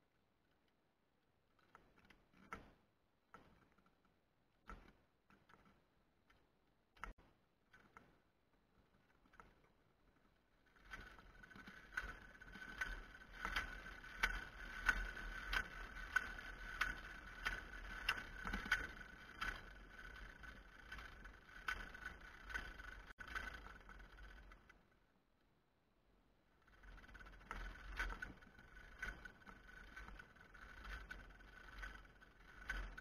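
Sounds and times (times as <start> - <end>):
cart on wire whining and clicking: 1.4 - 25.1, 26.4 - 33.0.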